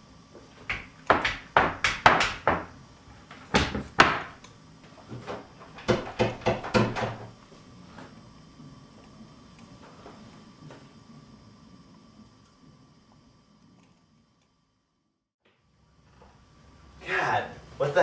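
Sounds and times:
sharp knocks and bangs: 0:03.5 - 0:04.4, 0:05.8 - 0:07.3.

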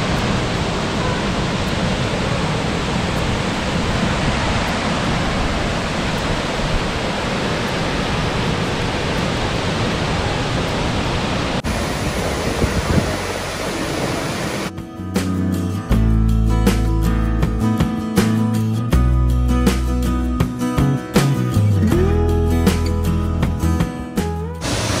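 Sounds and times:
water running over rocks: 0:00.0 - 0:14.7
waterfall rushing: 0:00.0 - 0:14.8, 0:24.6 - 0:25.0.

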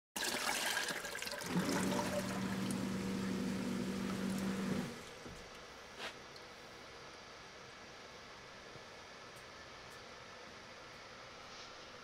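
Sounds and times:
toilet flushing: 0:00.2 - 0:05.2
water trickling: 0:00.2 - 0:05.2
grinder pump humming: 0:01.4 - 0:05.4.

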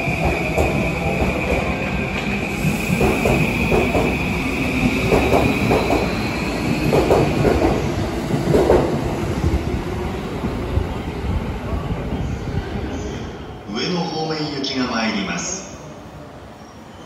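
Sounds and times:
train wheels clacking on rail joints: 0:02.9 - 0:04.2, 0:05.0 - 0:06.1, 0:06.8 - 0:09.0.

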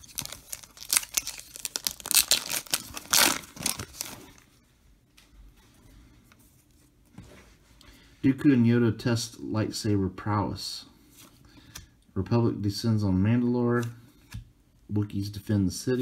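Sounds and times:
foil wrapper tearing: 0:00.0 - 0:04.4.

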